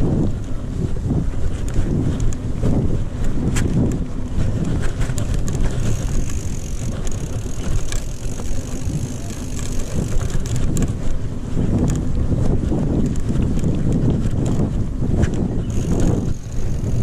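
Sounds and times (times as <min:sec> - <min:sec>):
bike frame rattling: 0:00.0 - 0:17.0
wind buffeting microphone: 0:00.0 - 0:17.0.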